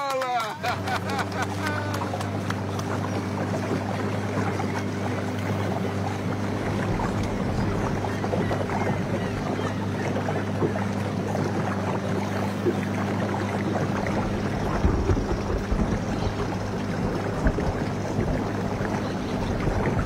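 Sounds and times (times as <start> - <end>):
boat motor humming: 0.0 - 20.0
deeper rumble: 0.6 - 20.0.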